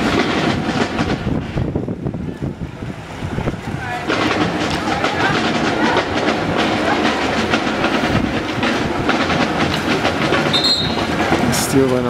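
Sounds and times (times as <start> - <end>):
crowd voices: 2.0 - 12.0
referee's whistle: 10.5 - 11.0.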